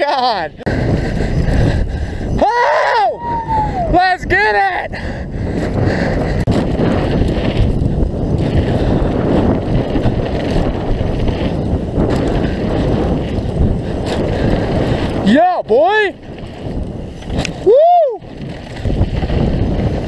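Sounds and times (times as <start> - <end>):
wind buffeting microphone: 0.0 - 20.0
bike tyres rolling over rocks: 5.4 - 20.0
bike knocks and rattles: 5.6 - 15.5, 16.2 - 20.0.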